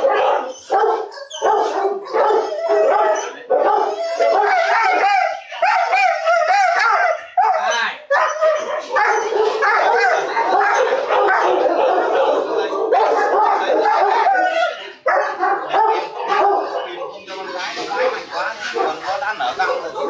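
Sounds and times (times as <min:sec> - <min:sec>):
dog whining and howling: 0:00.0 - 0:15.4.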